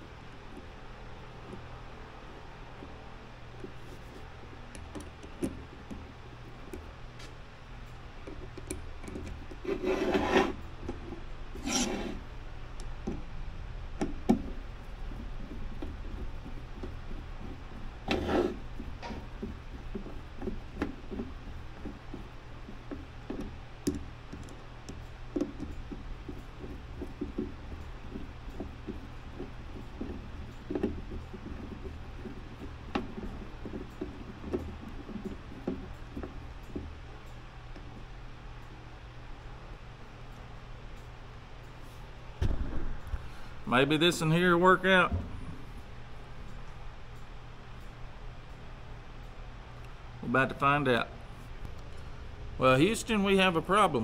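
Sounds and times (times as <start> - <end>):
steady low hum: 0.0 - 54.0
small clicks and knocks: 3.6 - 9.8, 18.8 - 38.8
short rasping scrapes: 9.7 - 10.6, 11.6 - 12.2, 18.1 - 18.6.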